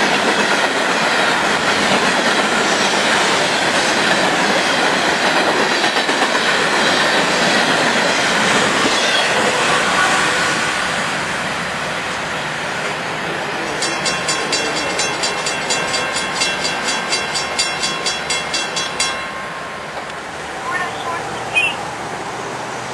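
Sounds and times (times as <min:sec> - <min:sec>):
train wheels rumbling on rails: 0:00.0 - 0:22.9.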